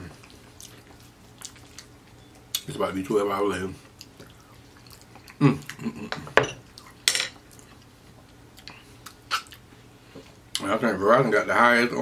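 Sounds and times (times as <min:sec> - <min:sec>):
mouth smacking while eating: 0:08.6 - 0:09.6.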